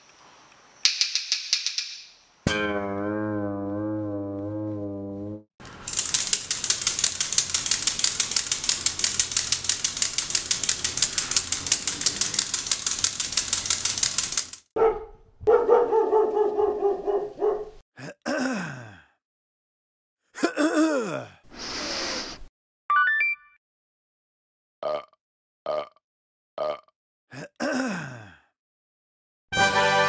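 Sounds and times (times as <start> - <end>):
onion rattle clattering: 5.7 - 14.6.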